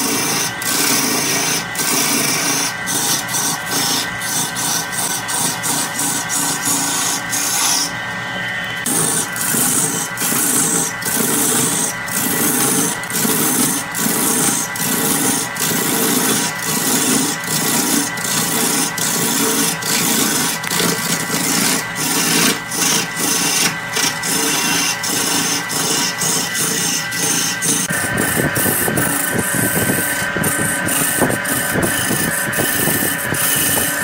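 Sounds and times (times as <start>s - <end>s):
lathe gouge shaving wood: 0.0s - 34.0s.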